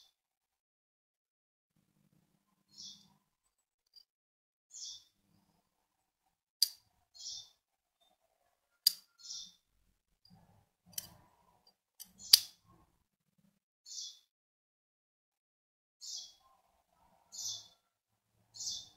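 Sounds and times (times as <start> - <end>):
faint bird chirp: 2.6 - 3.2, 4.7 - 5.6, 7.1 - 9.7, 13.9 - 14.3, 16.0 - 18.9
metallic lever clicks: 12.0 - 12.6.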